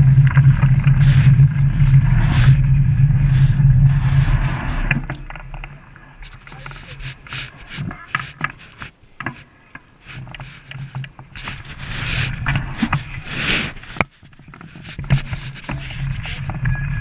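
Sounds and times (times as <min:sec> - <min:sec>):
clothing rubbing on camera: 0:00.0 - 0:05.2, 0:06.1 - 0:16.6
bike clicking and rattling: 0:00.0 - 0:17.0.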